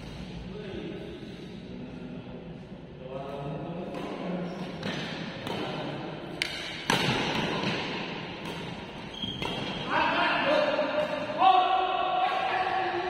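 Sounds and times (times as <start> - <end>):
badminton rackets hitting shuttlecock: 3.9 - 9.8.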